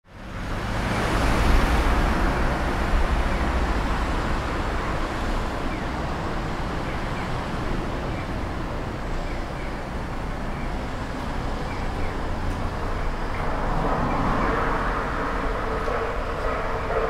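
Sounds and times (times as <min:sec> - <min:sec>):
road traffic hum: 0:00.0 - 0:17.0
vehicle passing: 0:10.8 - 0:17.0.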